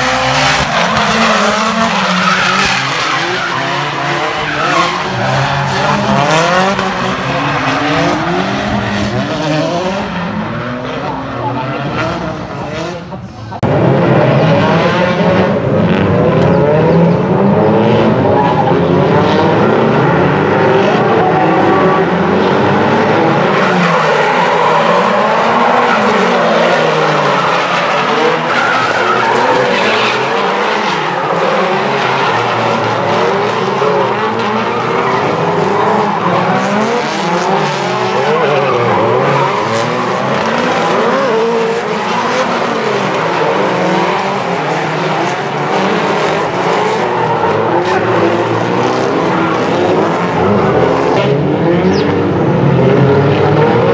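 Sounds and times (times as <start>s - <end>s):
car engines revving: 0.0s - 53.9s.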